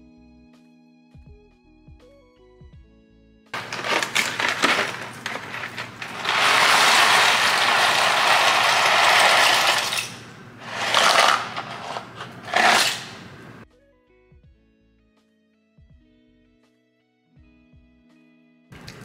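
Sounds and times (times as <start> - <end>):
dry pasta rattling into a pot: 3.6 - 13.6.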